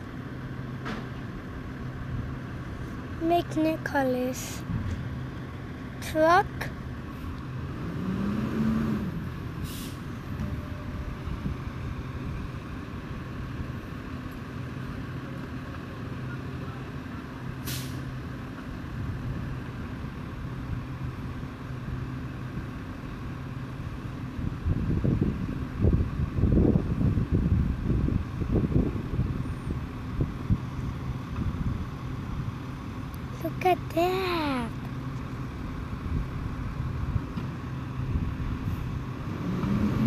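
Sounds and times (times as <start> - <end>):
truck engine idling: 9.2 - 26.3
air brake hisses: 9.6 - 10.1, 17.6 - 18.0.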